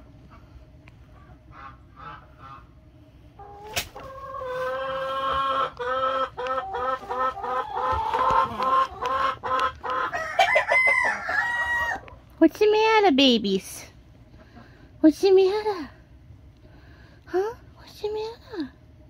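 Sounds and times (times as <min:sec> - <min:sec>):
chicken cackling: 0:00.2 - 0:12.3.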